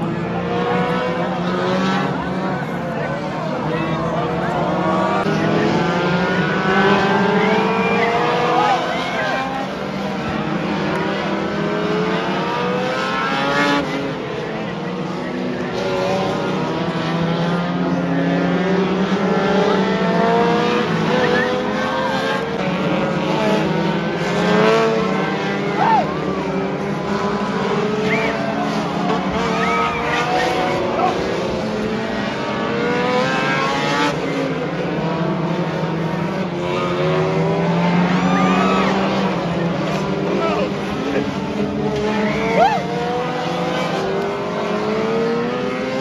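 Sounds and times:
race car engines revving: 0.0s - 46.0s
tire squeals: 6.6s - 9.7s, 21.1s - 22.0s, 25.6s - 26.2s, 27.9s - 31.2s, 37.8s - 41.2s, 42.0s - 43.2s.

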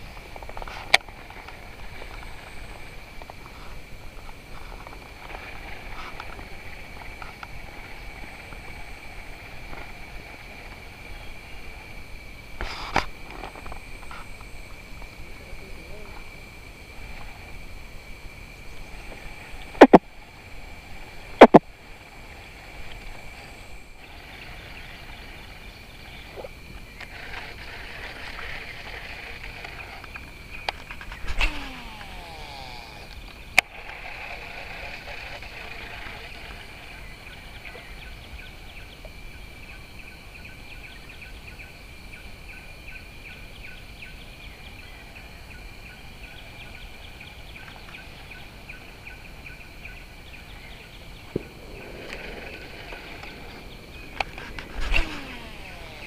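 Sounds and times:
high-pitched insect drone: 0.0s - 56.0s
fishing reel spool whirring: 18.8s - 37.7s, 52.1s - 56.0s.

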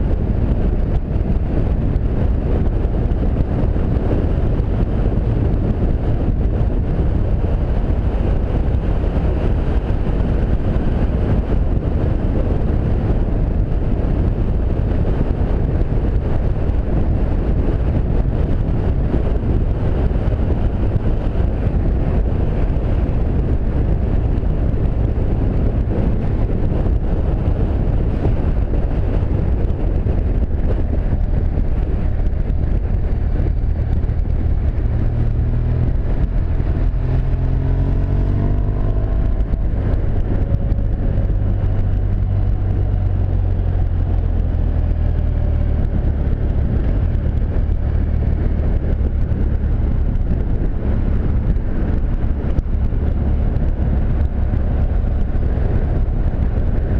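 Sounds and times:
motorcycle engine: 0.0s - 56.9s
road noise: 0.0s - 56.9s
wind rushing on microphone: 0.0s - 56.9s.

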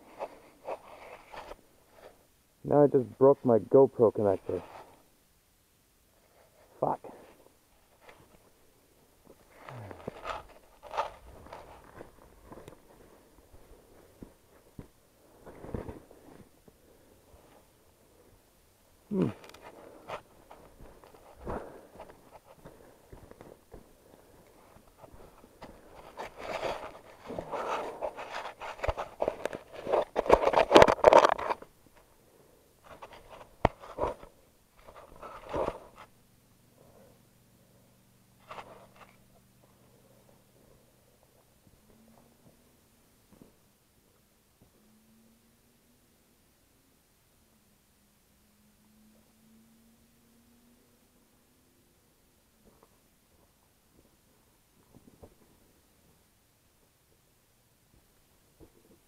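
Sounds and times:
camera handling rustles: 10.0s - 14.9s, 24.8s - 31.7s, 32.8s - 36.1s
camera handling scrapes: 26.0s - 31.6s.

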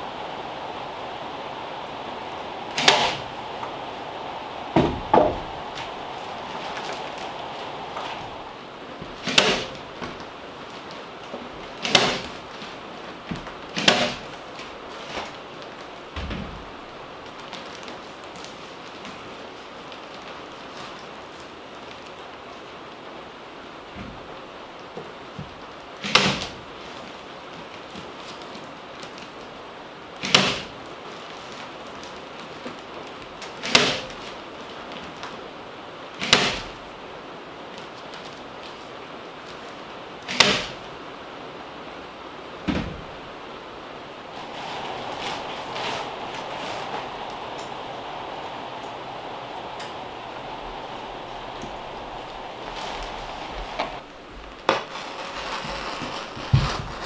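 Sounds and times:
short low thump: 4.7s - 5.9s.

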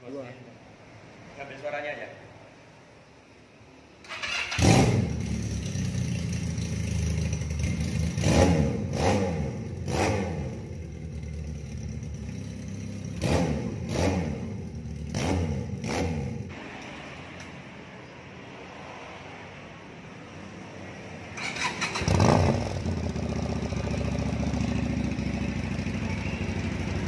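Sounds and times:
motorcycle engine idling and revving: 4.0s - 17.8s, 20.2s - 27.0s.

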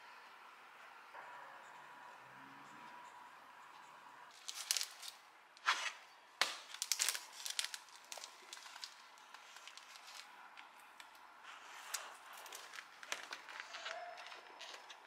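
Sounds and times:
plastic sleeves crinkling: 4.3s - 15.0s.

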